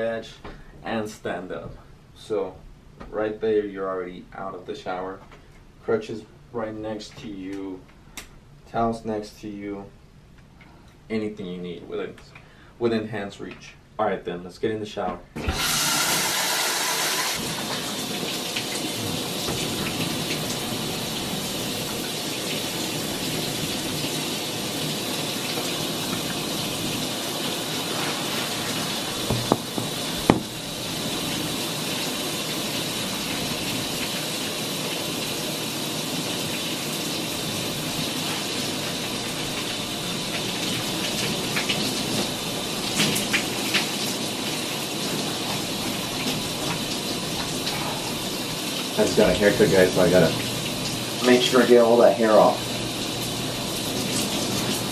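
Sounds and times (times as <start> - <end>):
shower spray hissing: 15.6 - 54.9
sharp knocks: 29.3 - 30.6.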